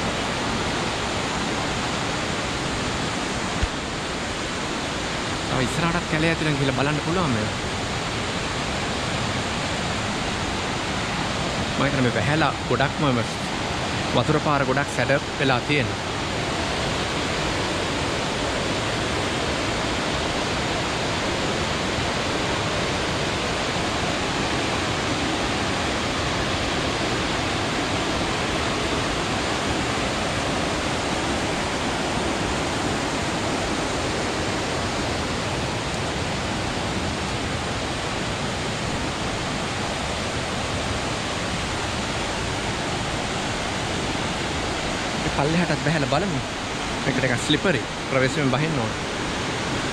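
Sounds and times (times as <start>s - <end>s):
river rushing over rapids: 0.0s - 49.9s.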